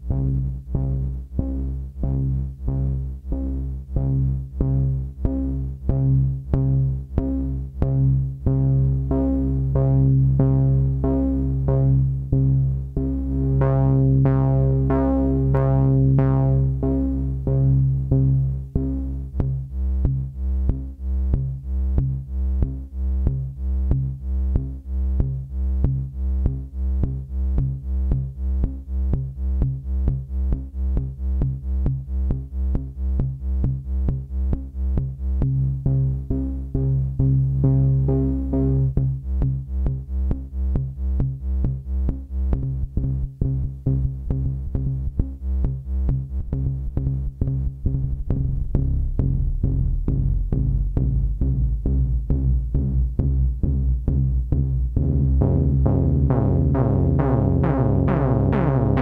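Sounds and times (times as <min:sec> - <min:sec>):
synthesizer low repeated note: 0:44.2 - 0:59.0.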